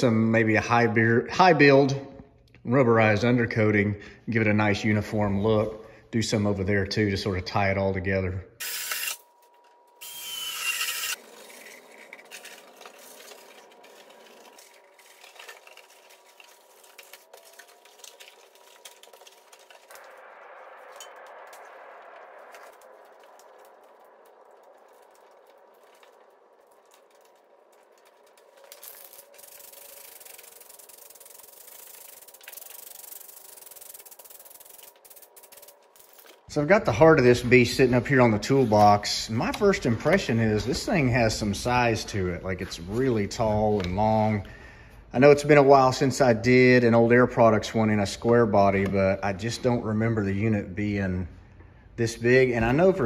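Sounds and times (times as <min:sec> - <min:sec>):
cordless drill boring metal: 0:08.6 - 0:09.2, 0:10.0 - 0:11.8
rustling and handling: 0:11.2 - 0:20.1, 0:22.4 - 0:36.6
aerosol can spraying: 0:29.4 - 0:36.2.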